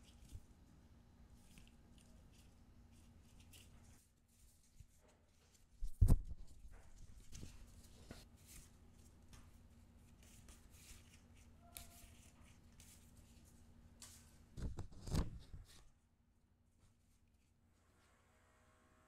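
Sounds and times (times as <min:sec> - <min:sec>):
paper rustling and sliding: 0:10.0 - 0:15.9.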